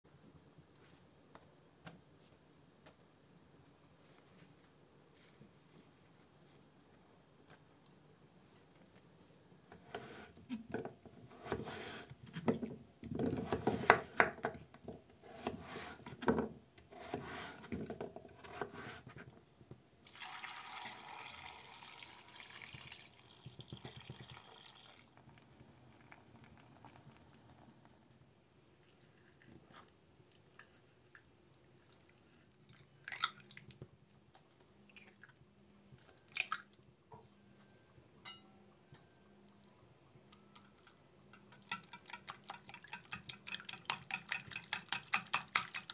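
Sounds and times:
water pouring into metal pot: 20.0 - 25.3.

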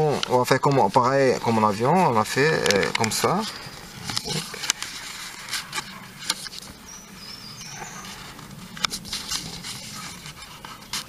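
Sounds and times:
paper folding and creasing: 0.0 - 11.0
faint high wavering tone: 3.5 - 10.0.

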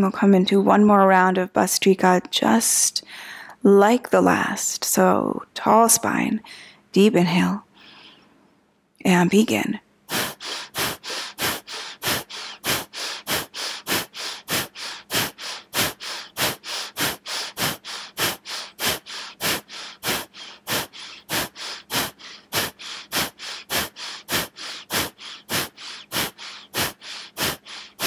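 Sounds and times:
rapid forceful breathing: 10.1 - 28.0.

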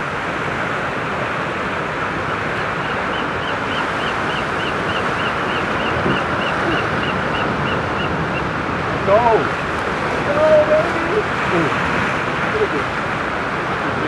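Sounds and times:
surf breaking on rocks: 4.2 - 14.0.

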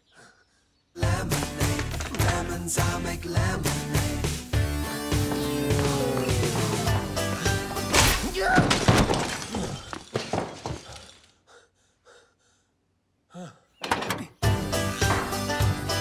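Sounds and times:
glass shattering: 7.9 - 10.8
faint gasps: 11.4 - 13.8.

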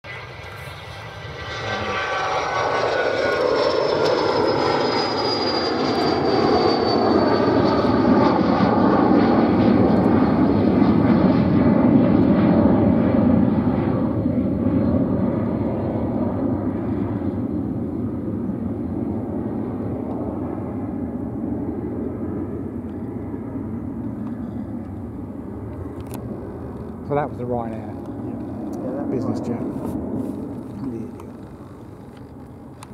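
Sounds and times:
jet engines at takeoff: 0.0 - 32.9.

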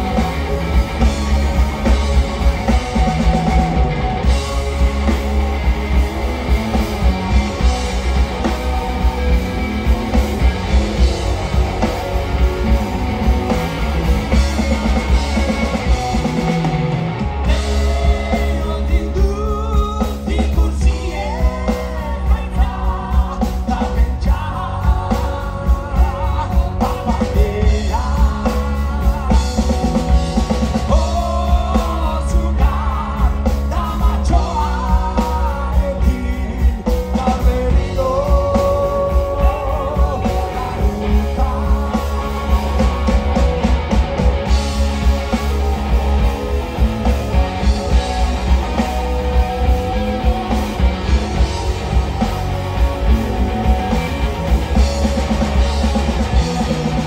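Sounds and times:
bass guitar: 0.0 - 57.0
distorted electric guitars: 0.0 - 57.0
drum kit: 0.0 - 57.0
man singing: 17.5 - 43.4.

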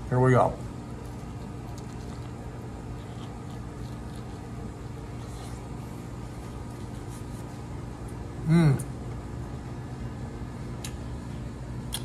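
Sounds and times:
low mechanical hum: 0.0 - 12.0
chewing crunchy fried food: 0.7 - 8.3.

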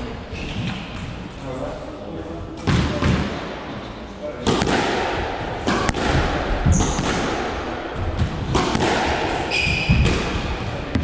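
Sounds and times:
squash ball knocking: 4.4 - 11.0
shoes squeaking on wooden floor: 9.5 - 10.0.

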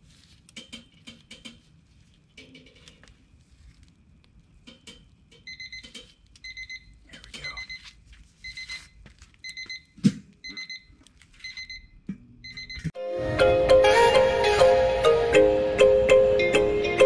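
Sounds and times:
electronic thermometer beeping: 5.4 - 7.8, 8.4 - 12.9.

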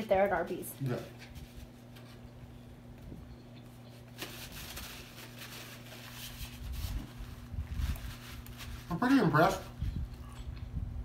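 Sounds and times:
faint low hum: 0.0 - 11.0
paper wrapper crinkling: 4.0 - 9.8.

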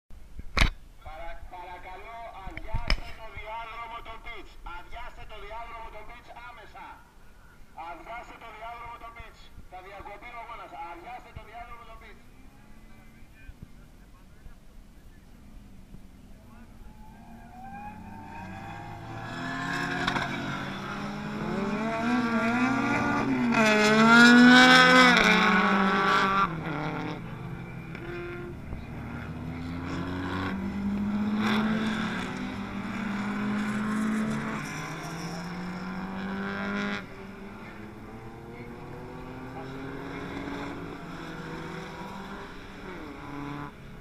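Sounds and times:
racing car engines revving: 11.0 - 44.0.

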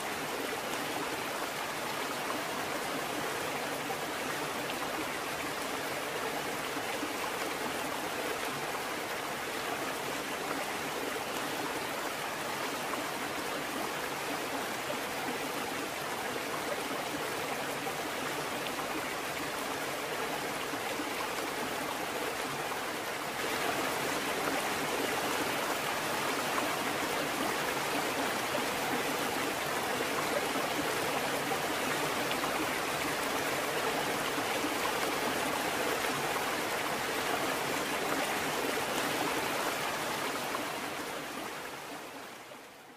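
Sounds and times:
running water rushing: 0.0 - 42.5.

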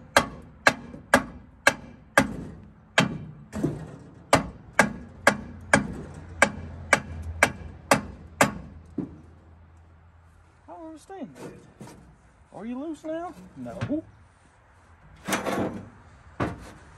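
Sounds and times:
hammer striking metal: 0.1 - 2.4, 3.0 - 3.7, 4.3 - 8.8.

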